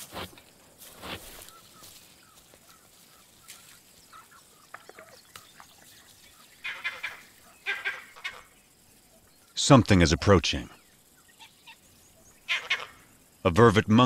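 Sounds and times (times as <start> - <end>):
wild animal calls: 1.3 - 9.5, 11.3 - 13.1.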